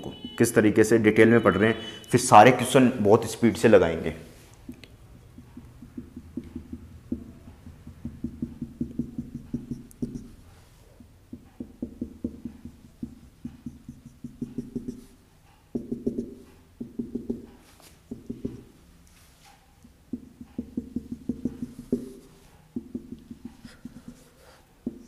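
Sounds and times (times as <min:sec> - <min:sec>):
marker pen ticking on whiteboard: 0:04.6 - 0:10.4, 0:11.0 - 0:18.7, 0:19.8 - 0:25.0.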